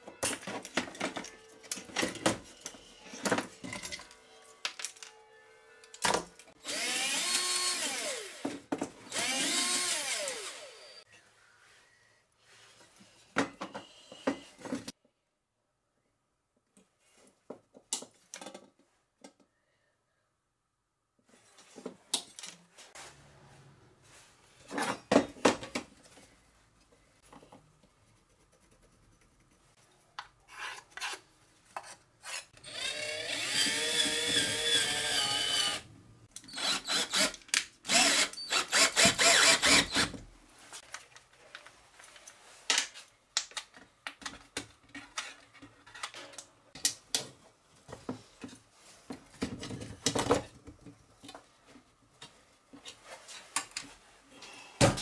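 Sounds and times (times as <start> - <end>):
tools handled on a workbench: 0.0 - 5.2, 21.3 - 23.0, 40.7 - 54.0
cordless drill motor whine: 9.1 - 11.0, 32.6 - 35.8
rough drill bursts: 9.1 - 11.0, 37.9 - 40.1.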